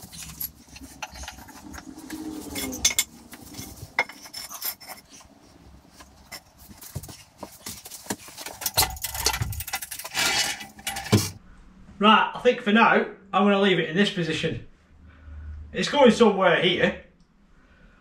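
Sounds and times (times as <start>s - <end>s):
metallic clinks and scrapes: 0.0s - 11.4s.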